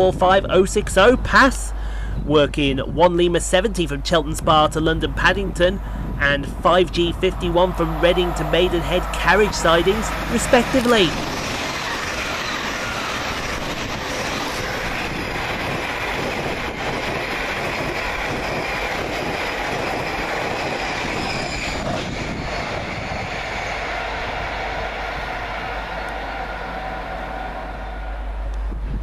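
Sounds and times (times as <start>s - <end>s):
trains rushing on rails: 3.6s - 29.0s.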